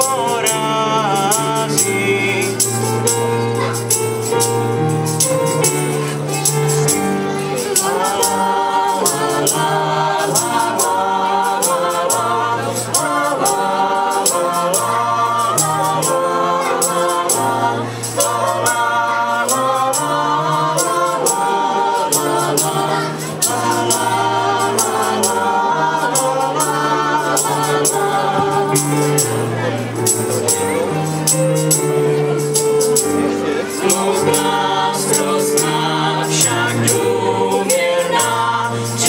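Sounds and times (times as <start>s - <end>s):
light high percussion: 0.0s - 39.0s
young choir singing: 0.0s - 39.0s.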